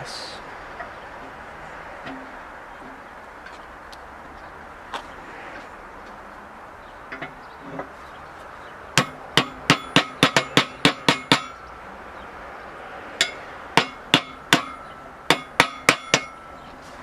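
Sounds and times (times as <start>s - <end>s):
hammer tapping metal bearing: 9.0s - 11.6s, 13.2s - 16.5s.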